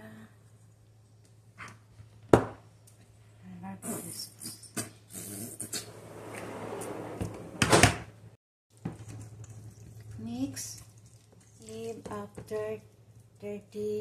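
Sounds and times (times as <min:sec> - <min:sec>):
hands mixing meat in bowl: 0:08.7 - 0:13.4.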